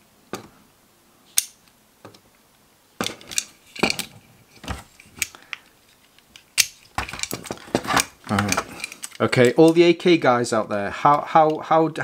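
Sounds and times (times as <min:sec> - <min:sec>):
small metal parts clicking: 0:05.0 - 0:09.8.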